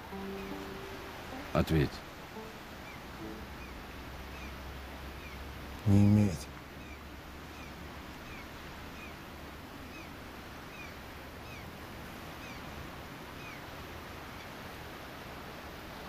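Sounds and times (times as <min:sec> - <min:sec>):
outdoor background hiss: 0:00.0 - 0:16.0
bird chirping: 0:00.1 - 0:01.6, 0:02.4 - 0:05.5.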